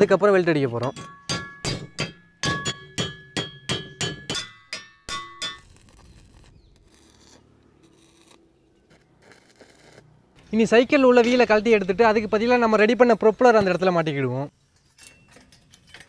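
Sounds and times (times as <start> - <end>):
hammer striking metal: 0.8 - 5.8.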